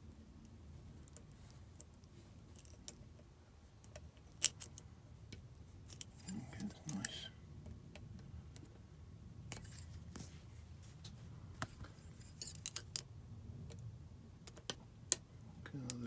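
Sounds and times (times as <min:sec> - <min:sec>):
lock pick clicking and scraping: 0:01.0 - 0:03.2, 0:03.8 - 0:07.2, 0:11.6 - 0:13.1.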